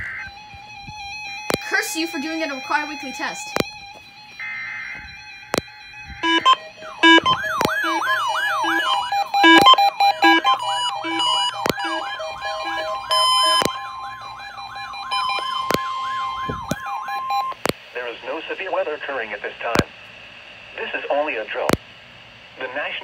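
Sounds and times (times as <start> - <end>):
siren-like whooping alarm tone: 0.0 - 17.6
sharp clicks: 0.8 - 1.7, 3.4 - 4.1, 5.0 - 17.8
steady alert tone: 4.5 - 17.6
short electronic beeps: 6.2 - 13.8, 15.1 - 17.6.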